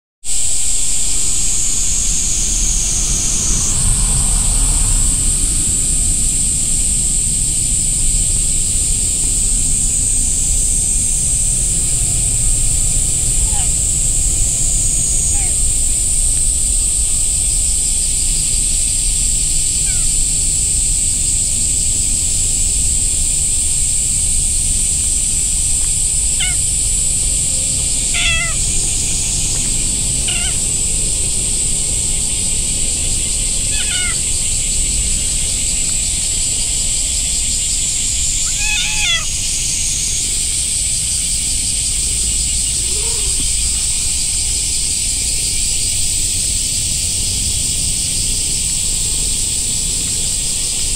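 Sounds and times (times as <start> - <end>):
steady high-pitched drone: 0.3 - 50.9
cat meowing: 13.5 - 13.8, 15.2 - 15.6, 19.7 - 20.1, 26.4 - 26.7, 28.1 - 29.0, 30.2 - 30.7, 33.7 - 34.3, 38.4 - 39.4.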